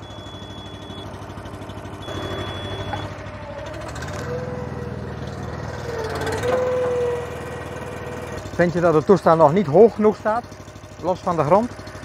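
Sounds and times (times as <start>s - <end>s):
hydraulic whine: 0.0s - 8.6s
petrol engine running: 0.0s - 12.0s.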